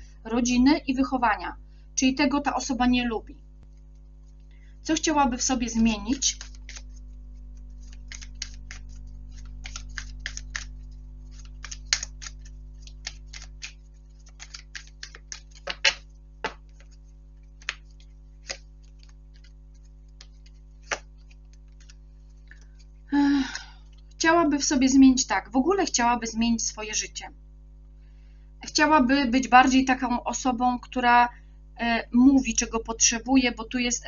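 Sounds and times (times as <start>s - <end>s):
steady low hum: 0.0s - 34.0s
cards shuffling: 5.9s - 23.0s.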